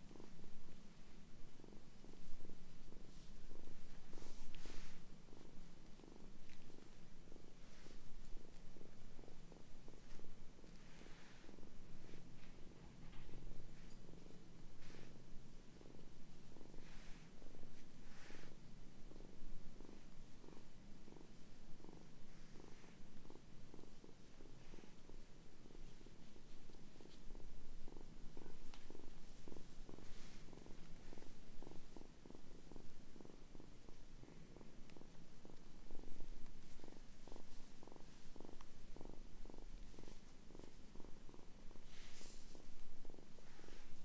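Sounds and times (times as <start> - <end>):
kitten purring: 0.0 - 44.0
hands rustling on fabric: 2.2 - 15.3, 24.2 - 32.9, 34.2 - 44.0.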